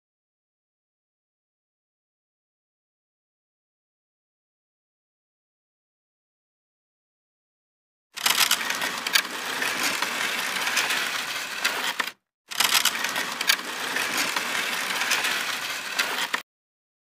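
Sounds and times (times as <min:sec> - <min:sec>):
gritty crunching scraping noise: 0:08.2 - 0:16.4.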